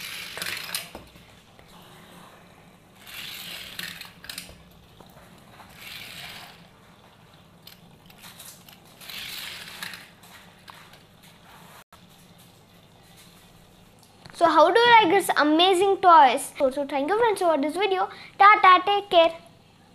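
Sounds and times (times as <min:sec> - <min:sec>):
toy car rolling on plastic track: 0:00.0 - 0:01.0, 0:03.0 - 0:04.5, 0:05.6 - 0:06.7, 0:07.7 - 0:10.1.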